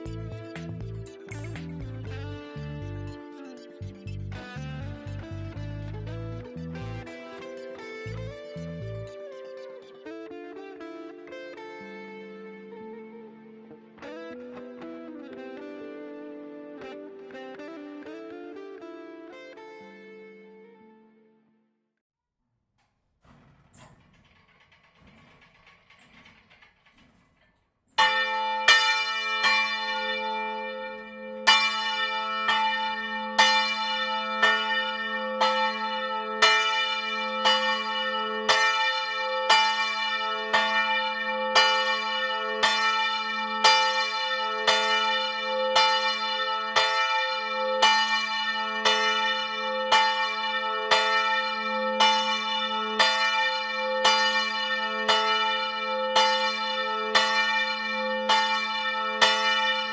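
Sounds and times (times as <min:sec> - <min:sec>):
large church bell striking: 0:00.0 - 0:11.9, 0:28.0 - 0:59.9.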